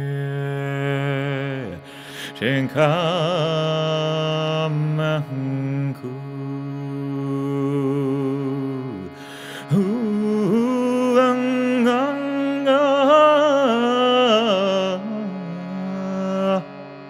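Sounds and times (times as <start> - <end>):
shruti box drone: 0.0 - 17.0
singer breathing: 1.8 - 2.4, 9.1 - 9.8
overtone singing: 9.7 - 16.8.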